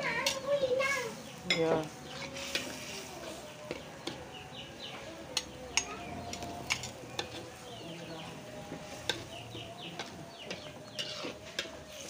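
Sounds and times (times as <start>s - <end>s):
metal spoon scraping wok: 1.4s - 4.2s, 5.3s - 12.0s.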